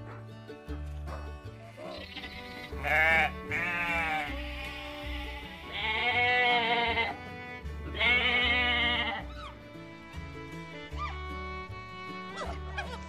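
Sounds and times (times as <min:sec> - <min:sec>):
background music: 0:00.0 - 0:13.0
sheep and goats bleating: 0:01.8 - 0:09.6.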